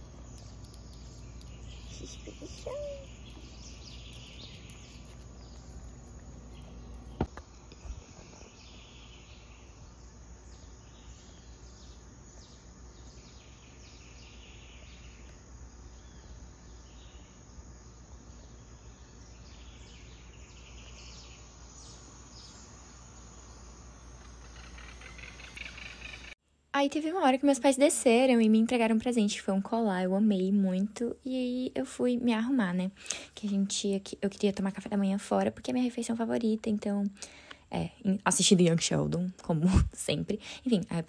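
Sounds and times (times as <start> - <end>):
small birds chirping: 0.0 - 26.4
low background hum: 0.0 - 41.0.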